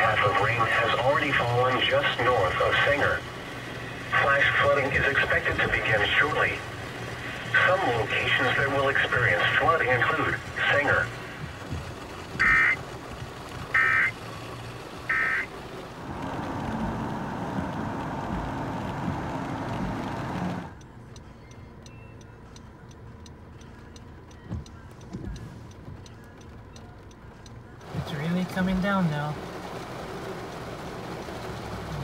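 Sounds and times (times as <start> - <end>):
heavy rain hissing: 0.0 - 20.7
car on wet road: 0.0 - 32.0
short electronic beeps: 12.4 - 12.8, 21.4 - 22.4.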